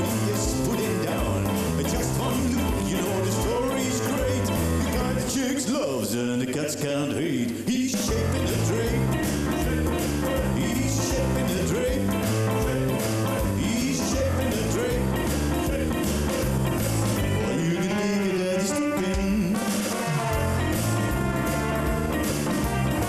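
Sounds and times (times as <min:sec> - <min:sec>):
dance music with bass: 0:00.0 - 0:05.4, 0:08.1 - 0:17.6, 0:19.6 - 0:23.0.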